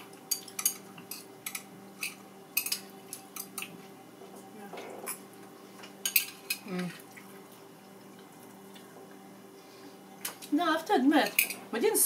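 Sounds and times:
woman talking: 0:10.5 - 0:12.0.

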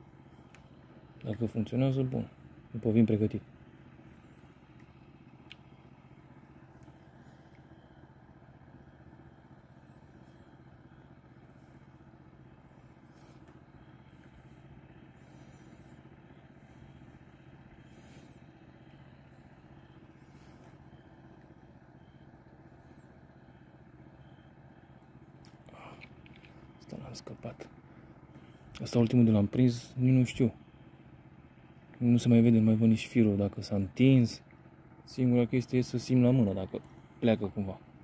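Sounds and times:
faint low hum: 0:00.0 - 0:38.0.

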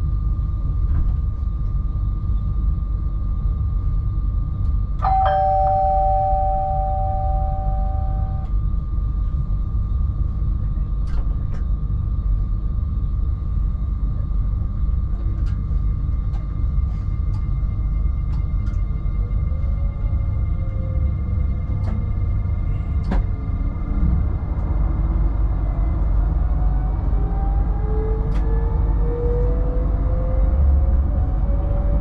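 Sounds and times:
electric train rumble and hum: 0:00.0 - 0:32.0
two-note electronic chime: 0:05.0 - 0:08.5.

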